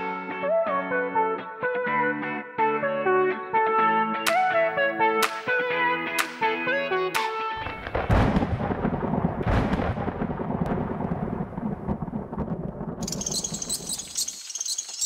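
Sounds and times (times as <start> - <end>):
rolling thunder rumble: 7.6 - 14.2
thunder crack: 7.6 - 14.3
high crackly hiss: 13.0 - 15.0.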